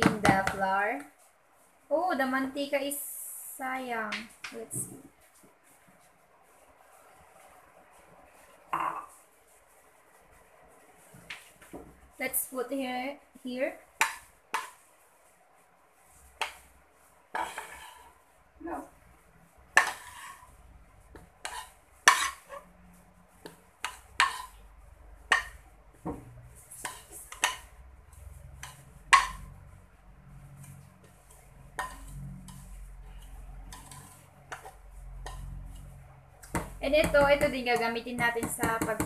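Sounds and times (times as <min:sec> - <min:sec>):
spatula scraping frying pan: 0:17.3 - 0:18.3, 0:19.5 - 0:25.7, 0:26.4 - 0:39.0.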